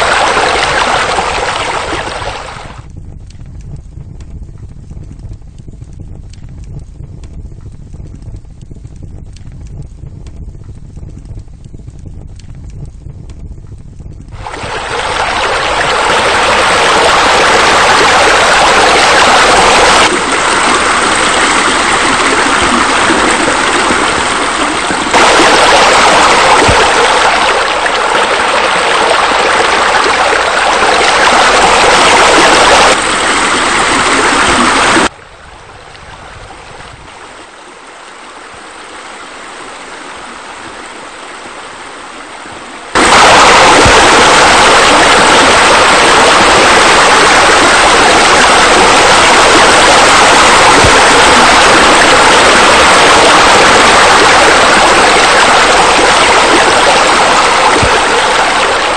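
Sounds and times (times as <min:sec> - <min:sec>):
waterfall rushing: 0:00.0 - 0:02.8, 0:14.4 - 0:35.1, 0:43.0 - 0:58.9.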